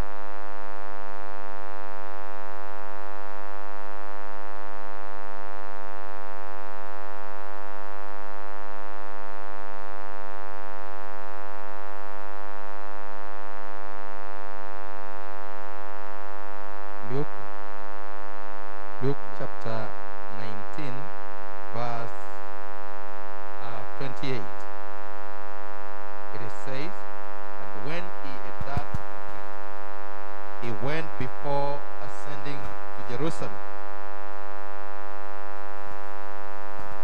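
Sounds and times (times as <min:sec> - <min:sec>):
electrical mains hum: 0:00.0 - 0:37.0
person speaking: 0:17.0 - 0:17.4, 0:19.0 - 0:21.1, 0:21.8 - 0:22.2, 0:23.6 - 0:24.6, 0:26.3 - 0:27.0, 0:27.7 - 0:29.1, 0:30.6 - 0:33.6.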